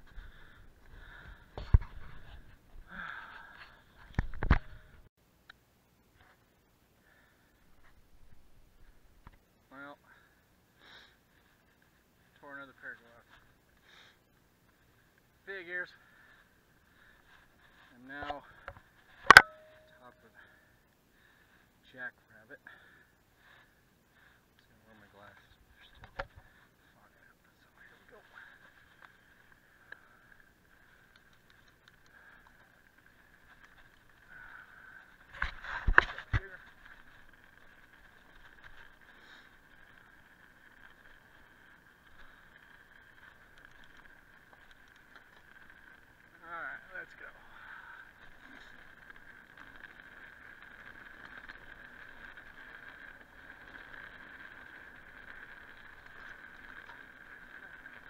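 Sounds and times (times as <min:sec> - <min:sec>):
tyres ticking on dirt: 0:10.8 - 0:58.0
high hum: 0:19.1 - 0:20.8
electric bike motor whine: 0:28.9 - 0:58.0.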